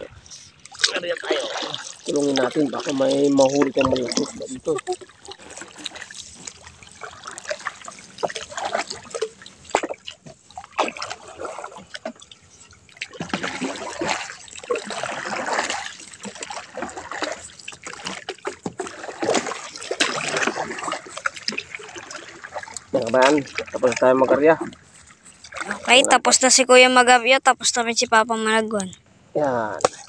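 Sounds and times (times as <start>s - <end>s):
wooden paddle pulling through water: 0.0s - 27.0s, 29.6s - 30.0s
water splashing and trickling: 0.0s - 30.0s.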